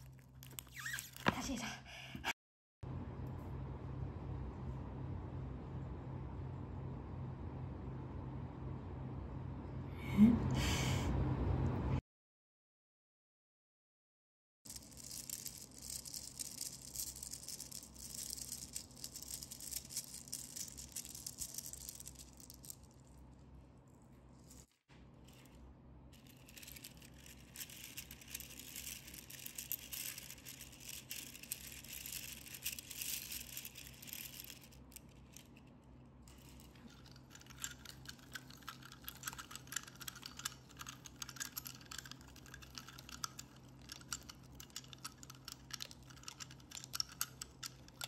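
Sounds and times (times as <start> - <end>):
seashells clicking and rattling: 14.7 - 23.0, 26.2 - 48.0.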